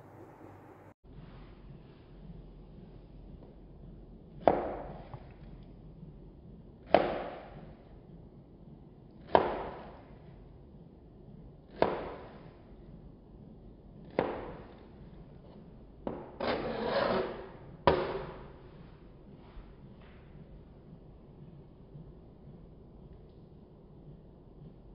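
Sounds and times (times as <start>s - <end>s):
knife chopping on plastic board: 4.4s - 5.3s, 6.9s - 7.6s, 9.2s - 10.0s, 11.7s - 12.5s, 14.0s - 14.8s
knife blade scraping board: 16.1s - 17.5s.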